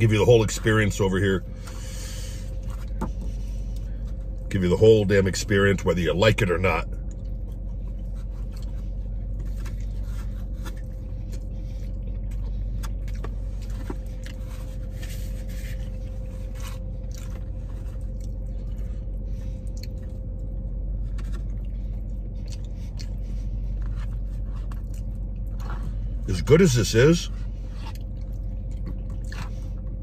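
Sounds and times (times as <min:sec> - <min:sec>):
steady low hum: 0:00.0 - 0:30.0
person chewing: 0:07.0 - 0:26.0, 0:27.6 - 0:30.0.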